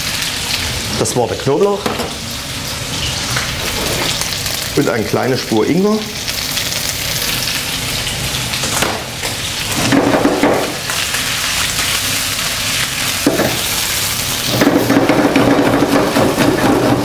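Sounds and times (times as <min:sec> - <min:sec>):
meat sizzling in hot oil: 0:00.0 - 0:17.0
utensil stirring in wok: 0:11.1 - 0:17.0.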